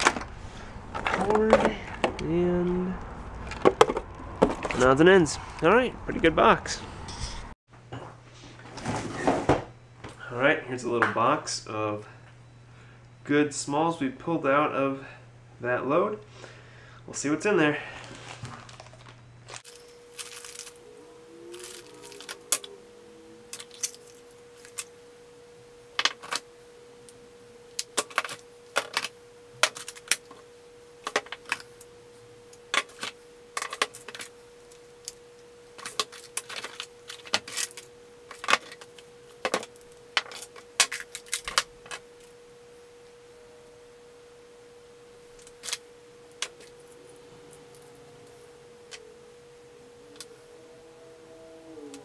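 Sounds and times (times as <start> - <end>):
small items clinking in metal tin: 18.2 - 20.8, 23.5 - 24.8.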